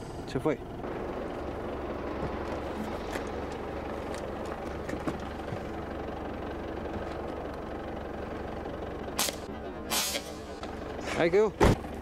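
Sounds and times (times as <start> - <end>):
engine running with low rumble: 0.0 - 12.0.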